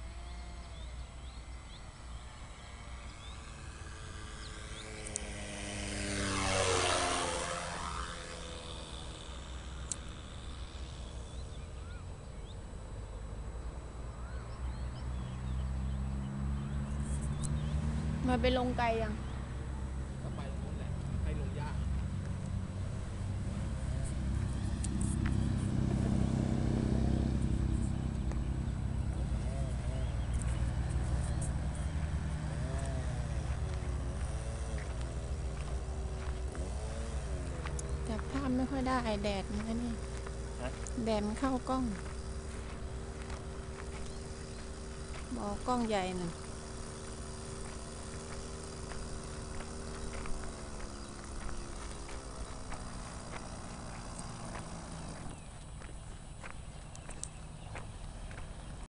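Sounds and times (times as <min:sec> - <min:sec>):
distant model airplane engine drone: 0:00.0 - 0:58.9
steady low rumble: 0:00.0 - 0:58.9
bird chirps: 0:00.1 - 0:05.2, 0:09.4 - 0:19.6, 0:28.4 - 0:36.3, 0:37.7 - 0:58.8.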